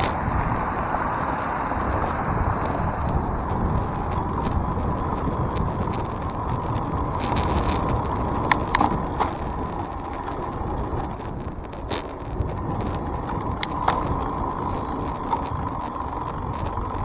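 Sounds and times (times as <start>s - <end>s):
wind and road noise: 0.0s - 17.0s
sharp clicks or rattles: 5.4s - 17.0s.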